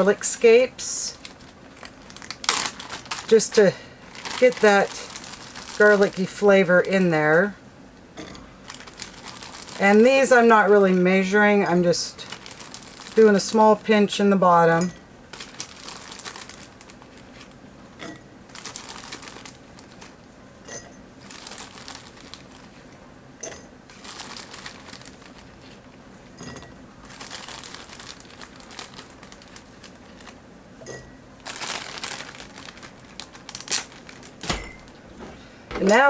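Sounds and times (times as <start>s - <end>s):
plastic bag crinkling: 0.0s - 7.4s, 8.6s - 17.6s, 18.5s - 20.2s, 21.2s - 22.9s, 23.9s - 25.9s, 27.0s - 30.4s, 31.4s - 36.0s.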